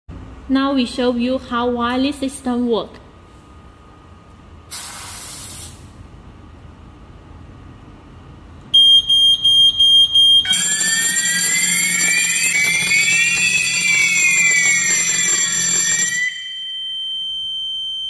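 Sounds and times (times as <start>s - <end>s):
aerosol spray hiss: 4.7s - 5.8s
high-pitched alarm beeps: 8.8s - 18.0s.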